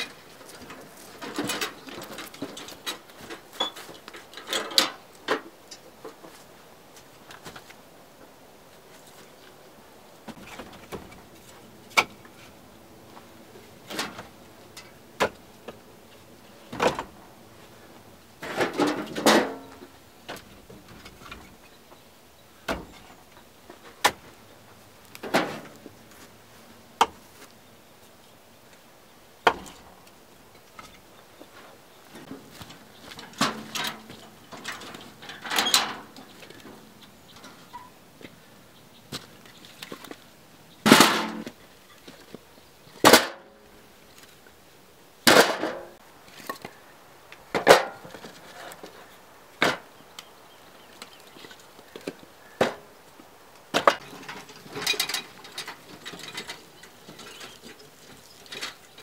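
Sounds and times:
metal wheelbarrow rattling: 0.0 - 5.5, 13.5 - 15.8, 18.4 - 21.6, 25.1 - 26.0, 30.7 - 38.0, 40.8 - 41.6, 43.0 - 43.6, 45.2 - 46.6, 47.5 - 49.0, 53.7 - 59.0
firewood logs clacking: 0.0 - 7.8, 29.4 - 38.4, 40.8 - 42.4, 47.4 - 59.0.

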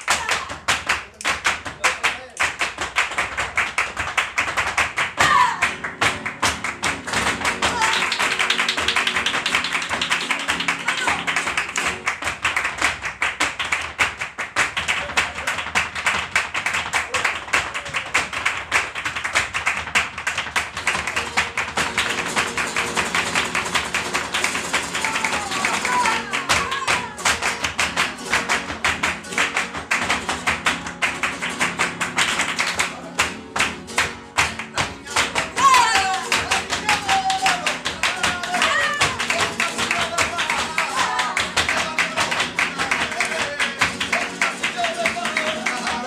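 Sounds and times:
flamenco guitar: 0.0 - 46.0
footwork on wooden stage: 0.0 - 46.0
handclapping: 0.0 - 46.0.

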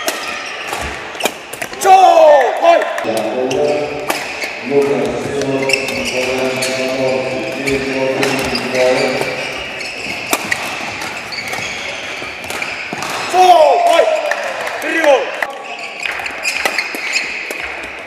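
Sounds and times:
racquets hitting shuttlecock: 0.0 - 1.8, 4.0 - 6.7, 7.4 - 18.0
voices: 1.8 - 9.9
shoe squeaks on court: 3.4 - 13.0, 15.6 - 17.7.

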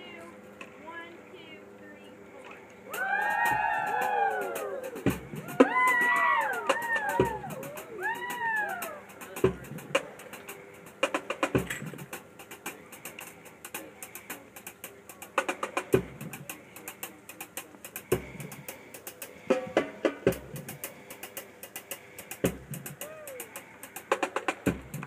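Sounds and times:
bass drum thumps: 9.4 - 10.0, 15.9 - 16.5, 18.1 - 18.6, 20.2 - 20.8, 22.5 - 23.0.

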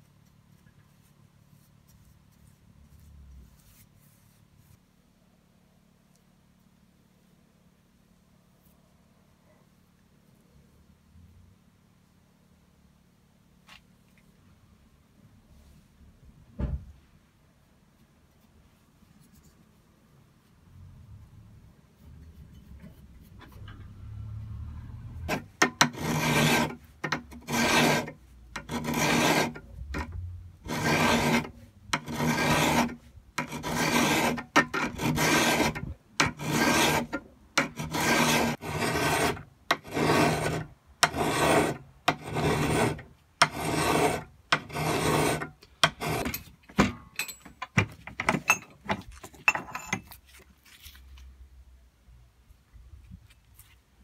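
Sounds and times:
hand file scraping steel: 25.2 - 47.4.

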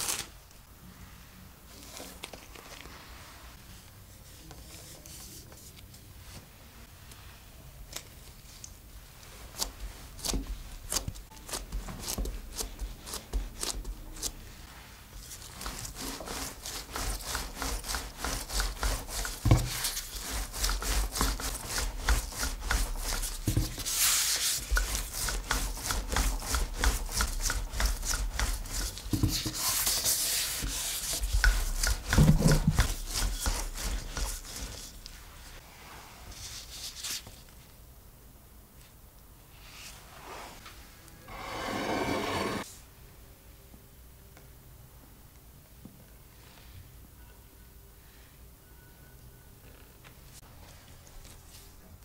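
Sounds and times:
rolling pin rolling dough: 9.2 - 35.6, 41.3 - 42.7
hand tapping dough: 16.1 - 29.6, 30.6 - 35.2.

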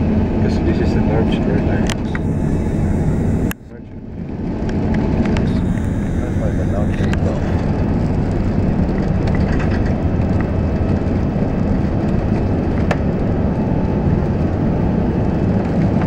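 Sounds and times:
jet engines rumbling at takeoff: 0.0 - 16.0
wheels running over runway: 6.8 - 16.0.

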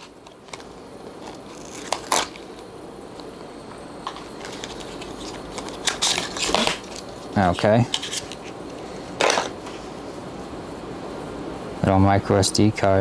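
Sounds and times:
cardboard rustling and scraping: 0.0 - 2.6, 4.0 - 10.0.

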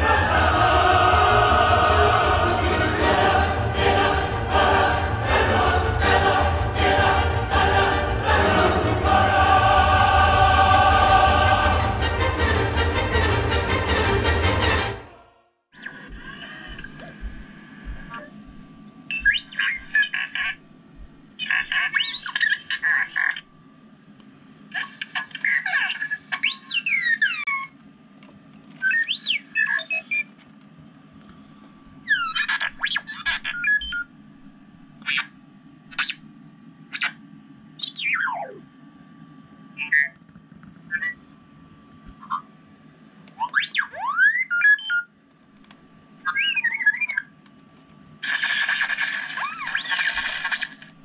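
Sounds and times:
robot beeps and whistles from speaker: 19.1 - 20.2, 28.8 - 30.3, 32.1 - 34.1, 37.8 - 38.6, 43.4 - 45.1, 46.3 - 47.3.

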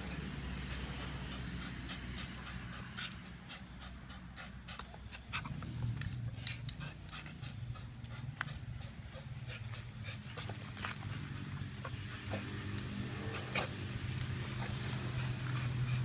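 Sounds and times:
dog panting and growling: 0.0 - 16.0.

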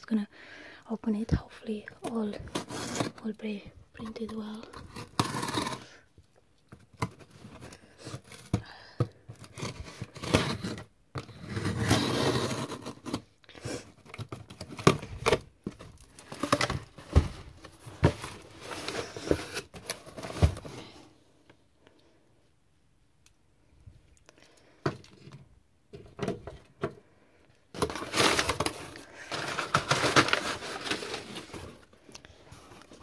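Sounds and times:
cardboard flaps scraping and knocking: 14.9 - 21.0.

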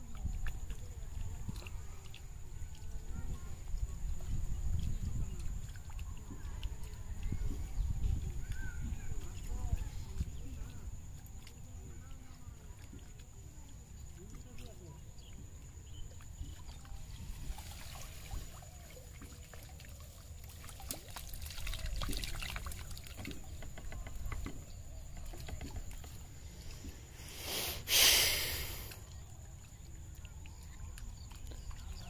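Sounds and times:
water dripping: 0.0 - 27.1, 28.4 - 32.0
water splashing and trickling: 0.0 - 32.0
water pouring off net: 17.2 - 23.4.

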